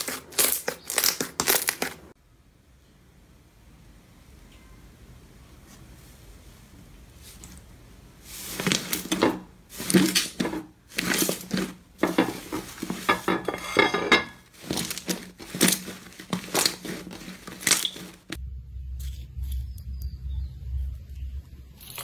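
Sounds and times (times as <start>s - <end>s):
hands squishing slime: 0.0s - 2.0s, 14.6s - 18.4s.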